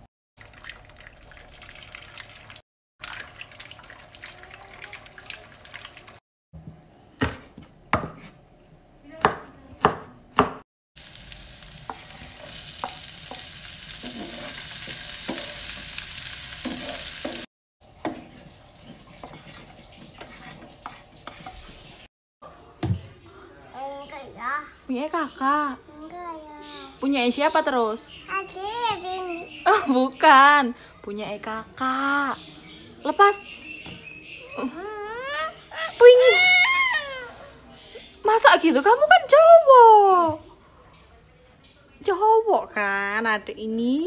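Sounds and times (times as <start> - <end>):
shallots sizzling in hot oil: 11.0 - 22.1
spatula scraping a pan: 11.9 - 15.9, 16.5 - 22.1.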